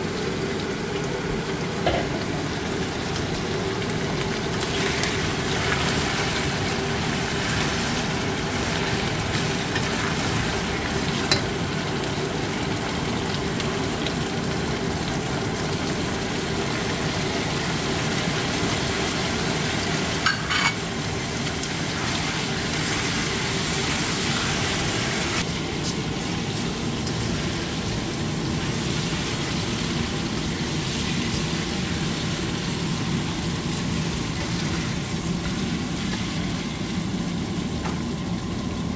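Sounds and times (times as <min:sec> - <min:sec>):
meat sizzling in a frying pan: 0:00.0 - 0:38.9.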